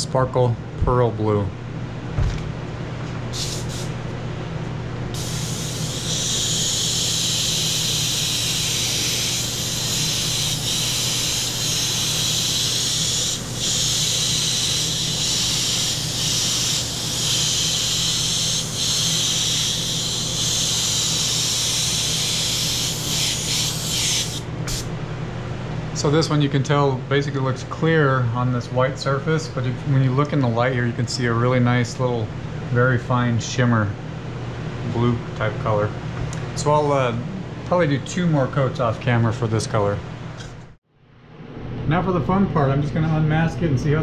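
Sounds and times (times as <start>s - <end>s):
airbrush spraying paint: 3.3s - 4.0s, 5.1s - 24.9s.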